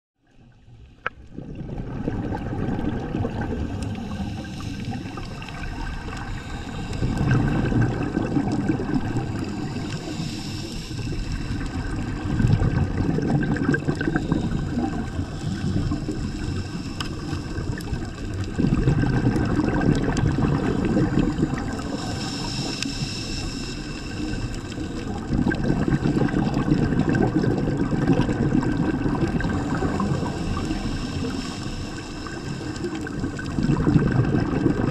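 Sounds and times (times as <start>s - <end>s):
exhaled bubbles underwater: 0.2s - 34.9s
regulator inhalation hiss: 3.8s - 8.2s, 8.9s - 12.3s, 13.7s - 18.5s, 20.5s - 25.6s, 29.4s - 33.5s.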